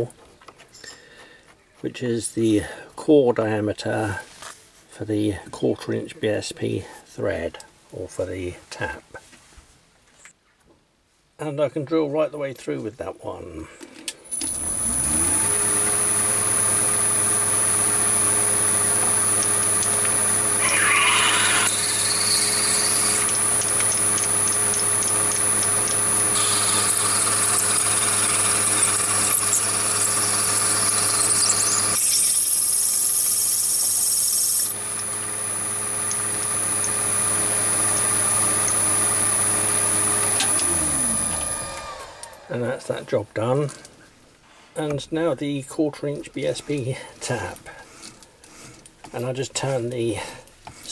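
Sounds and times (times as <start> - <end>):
drill cutting plastic: 14.3 - 42.6
lathe motor hum with whine: 14.3 - 42.6.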